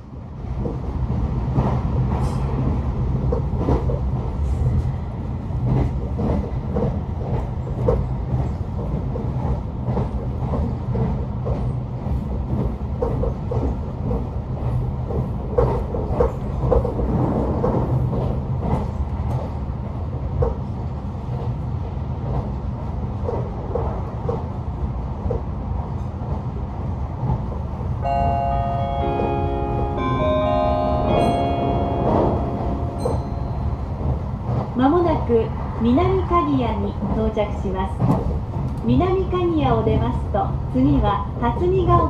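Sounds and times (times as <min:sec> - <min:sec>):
train wheels rumbling on rail: 0:00.0 - 0:42.0.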